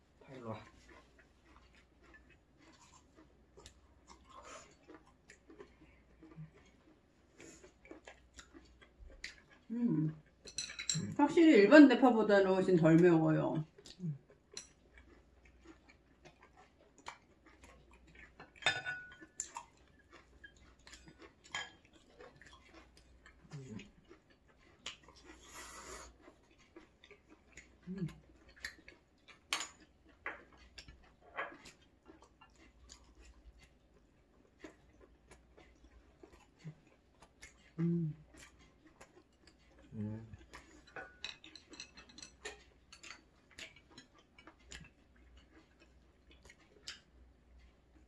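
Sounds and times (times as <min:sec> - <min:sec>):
chewing: 0:00.0 - 0:11.7, 0:13.6 - 0:48.0
utensils clicking against dishes: 0:10.4 - 0:11.2, 0:40.8 - 0:44.8.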